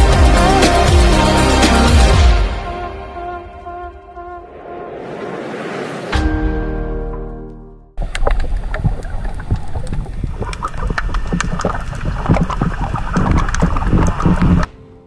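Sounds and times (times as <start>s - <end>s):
underwater clicks and crackles: 8.0s - 14.7s
underwater rumble of moving water: 8.0s - 14.7s.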